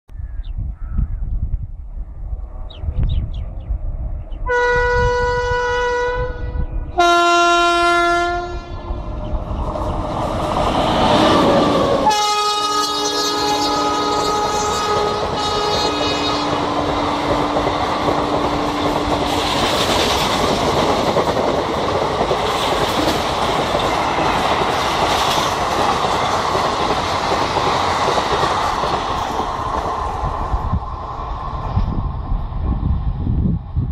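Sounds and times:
locomotive horn blasts: 4.5s - 9.0s, 12.0s - 17.0s
train wheels clickety-clack: 13.0s - 30.8s.

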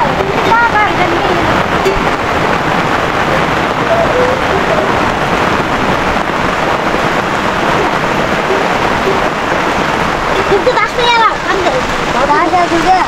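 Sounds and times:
steady rain falling: 0.0s - 13.0s.

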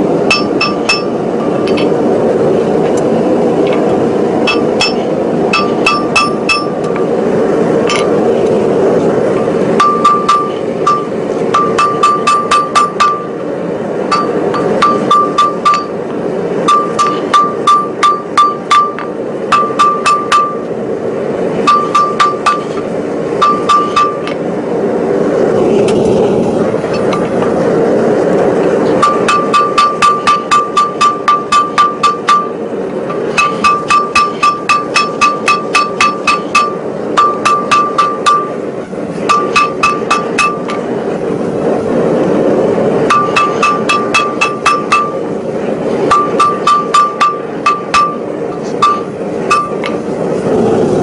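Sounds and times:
hammer striking steel on anvil: 0.3s - 1.9s, 4.4s - 7.0s, 9.8s - 13.4s, 14.1s - 16.0s, 16.6s - 20.7s, 21.6s - 24.4s, 29.0s - 38.6s, 39.2s - 40.8s, 43.1s - 45.2s, 46.1s - 50.0s.

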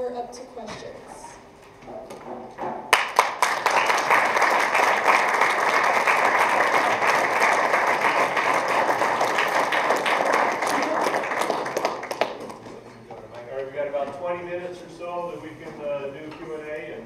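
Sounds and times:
audience applauding: 2.9s - 12.8s.

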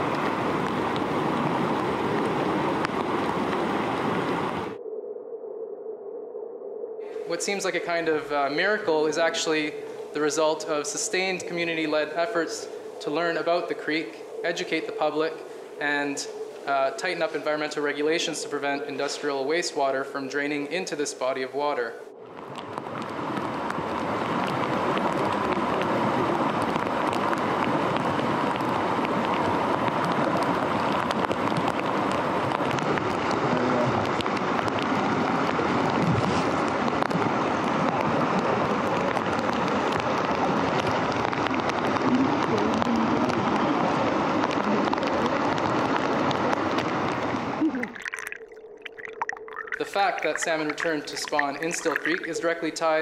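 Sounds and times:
falling rain: 0.0s - 4.8s, 22.2s - 53.0s
creek rushing: 49.0s - 53.0s.

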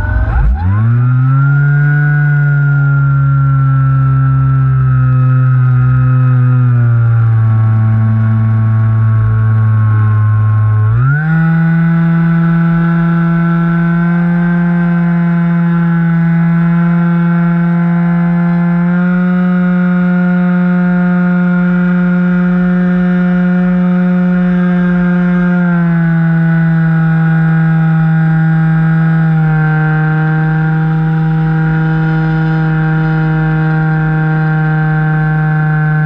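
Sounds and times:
wind rumble: 0.0s - 7.6s
electric motor and propeller whine: 0.0s - 36.0s.

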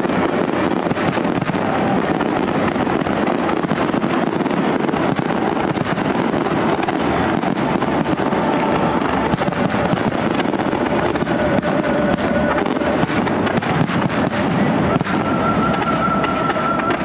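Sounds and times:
fireworks bursting and crackling: 0.0s - 17.0s.

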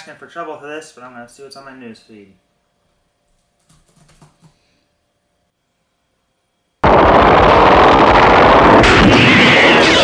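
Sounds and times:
gunfire and explosions: 6.8s - 10.0s.

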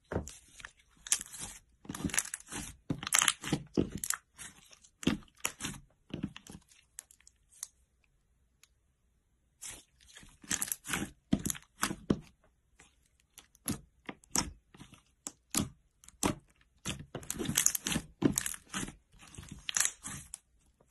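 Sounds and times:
slime popping and crackling: 15.4s - 20.3s.

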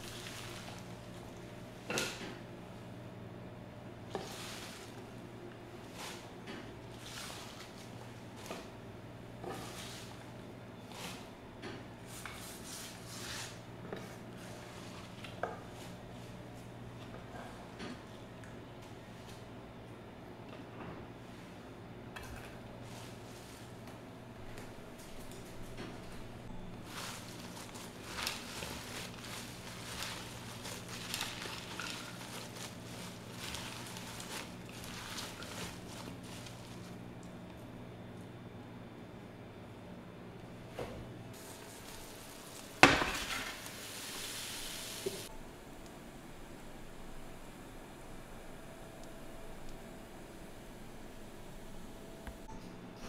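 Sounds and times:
leaves rustling on wooden board: 0.0s - 1.5s, 26.7s - 37.0s, 41.4s - 45.3s
faint steady hum: 0.0s - 53.0s.

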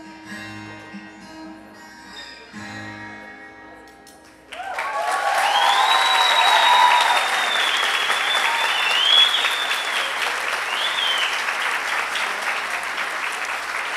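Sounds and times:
audience applauding and cheering: 4.5s - 13.9s
high whistle: 5.4s - 11.6s.

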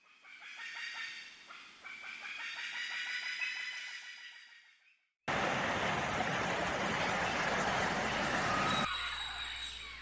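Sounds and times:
fast pulsing animal call: 5.4s - 10.0s.

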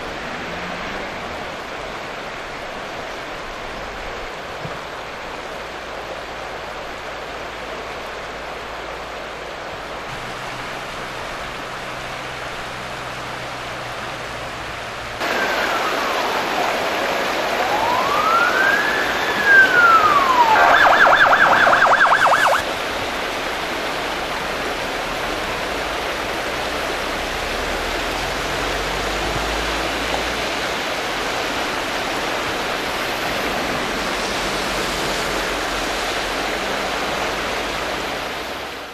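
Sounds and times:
river water rushing over stones: 0.0s - 38.9s
emergency vehicle siren: 15.2s - 22.7s.

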